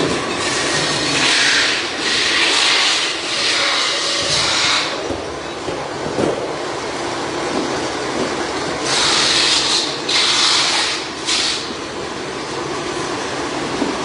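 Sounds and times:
workshop machinery droning: 0.0s - 5.6s, 8.7s - 13.8s.

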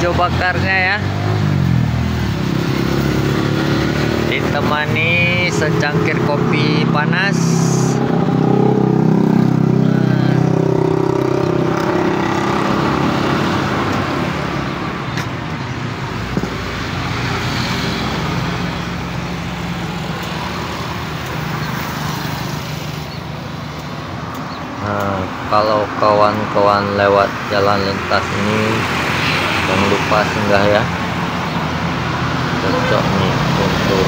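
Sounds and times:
road noise: 0.0s - 34.0s
vehicle engine passing: 0.0s - 34.0s.

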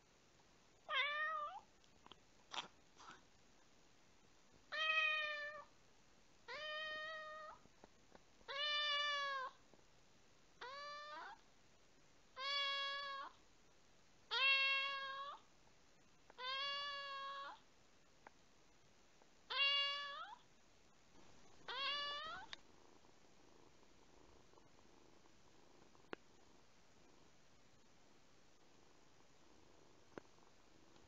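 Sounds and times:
kitten meowing: 16.4s - 17.6s, 19.5s - 20.4s, 21.7s - 22.5s.

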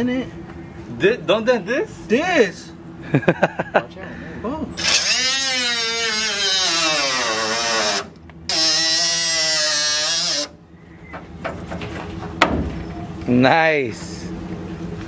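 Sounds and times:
cut-off tool cutting steel: 4.8s - 10.5s.

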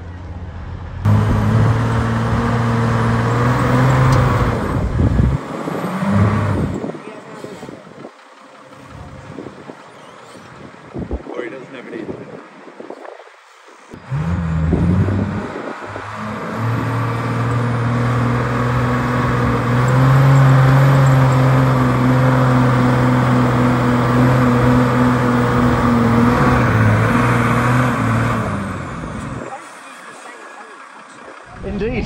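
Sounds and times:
engine running loudly: 1.0s - 8.0s, 14.0s - 32.0s.

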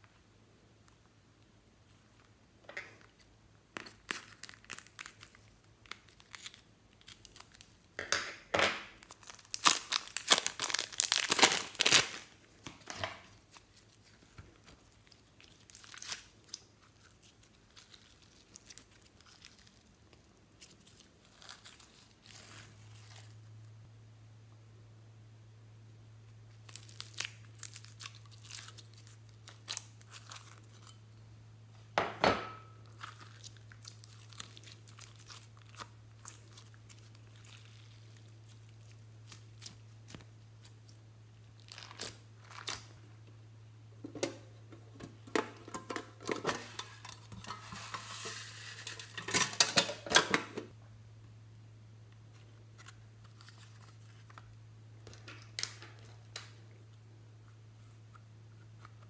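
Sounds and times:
slime popping and crackling: 3.8s - 7.8s, 8.9s - 12.4s.

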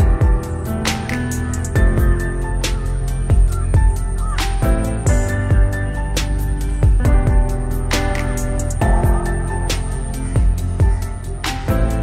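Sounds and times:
held music chords: 0.0s - 12.0s.

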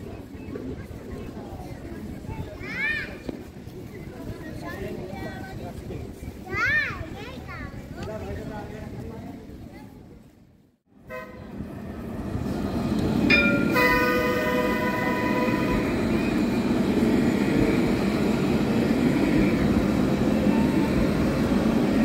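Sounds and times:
tram rolling: 0.0s - 22.0s
tram horn: 11.0s - 12.1s, 13.3s - 16.5s.

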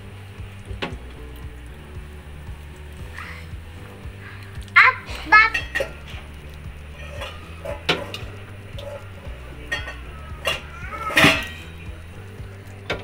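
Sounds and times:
steady low hum: 0.0s - 13.0s
metal utensils clinking dishes: 4.8s - 12.0s.

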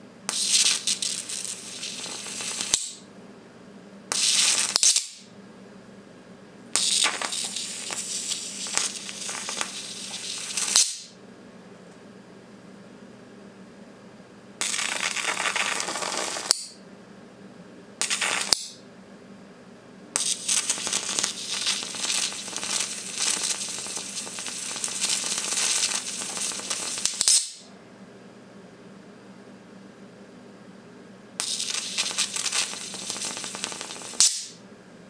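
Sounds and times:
electric arc sizzling and crackling: 0.3s - 3.0s, 4.1s - 5.3s, 6.8s - 11.2s, 14.6s - 16.8s, 18.0s - 18.8s, 20.2s - 27.7s, 31.4s - 34.6s.

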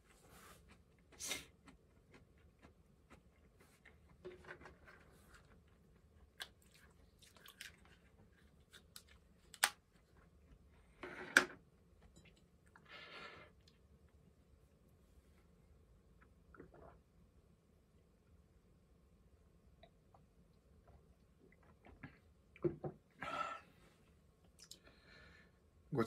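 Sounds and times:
chewing and mouth sounds: 0.6s - 4.2s, 5.4s - 9.4s.

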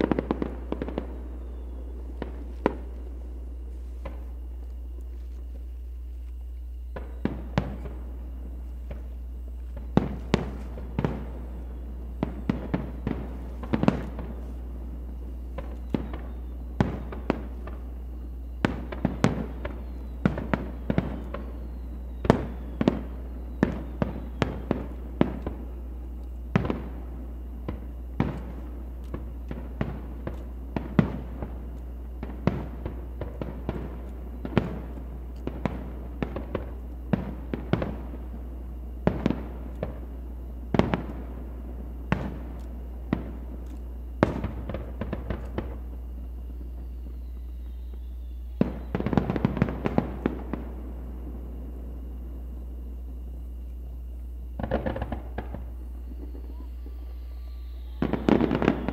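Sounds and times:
steady low hum: 0.0s - 58.9s
firework shells bursting: 52.1s - 58.9s.

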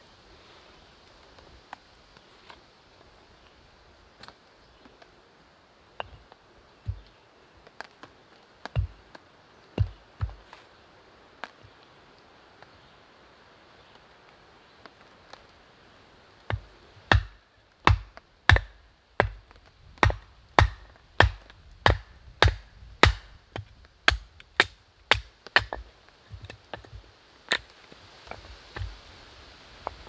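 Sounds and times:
axe chopping firewood: 6.0s - 7.1s, 8.6s - 9.2s, 9.8s - 10.6s, 16.5s - 27.7s, 28.3s - 29.0s
light wooden knocks: 6.0s - 10.6s, 20.9s - 29.0s.

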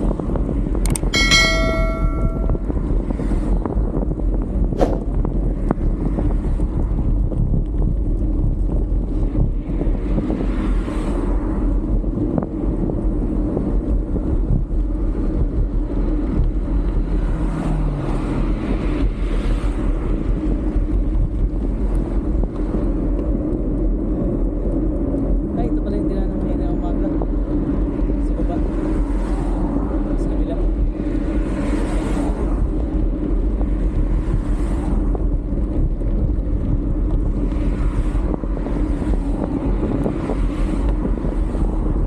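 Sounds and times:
wind buffeting microphone: 0.0s - 42.0s
sharp click: 0.8s - 1.1s.

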